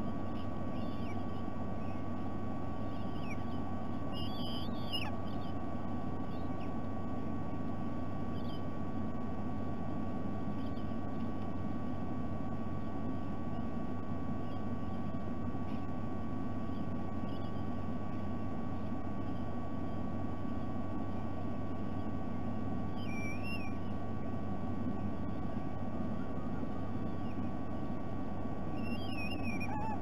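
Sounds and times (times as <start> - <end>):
faint high whine: 0.0 - 30.0
low rumble and electrical hum: 0.0 - 30.0
wavering bird call: 2.9 - 5.6, 22.9 - 23.8, 28.7 - 30.0.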